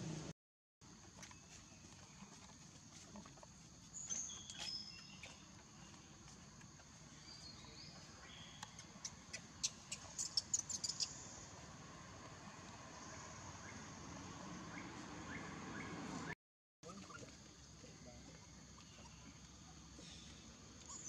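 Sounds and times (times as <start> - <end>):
outdoor background noise: 0.0 - 21.0
short high chirping calls: 8.4 - 11.4.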